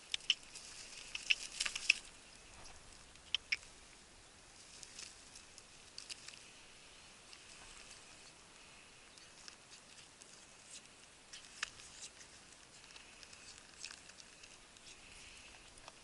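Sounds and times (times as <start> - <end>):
beak tearing at meat ticks: 0.0 - 3.7, 9.2 - 16.0
faint hiss: 0.0 - 16.0.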